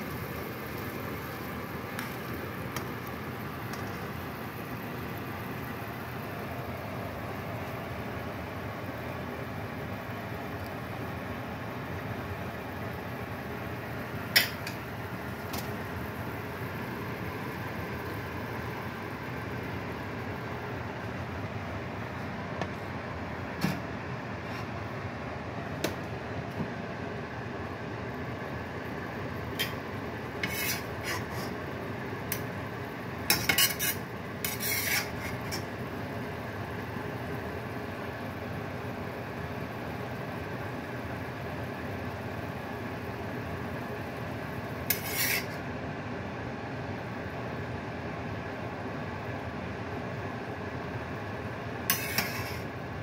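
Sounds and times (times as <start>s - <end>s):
fan-like hum: 0.0s - 53.0s
steady background hiss: 0.0s - 53.0s
metal utensil scraping cookware: 30.4s - 31.6s, 33.3s - 35.7s, 44.9s - 45.6s, 51.9s - 52.7s.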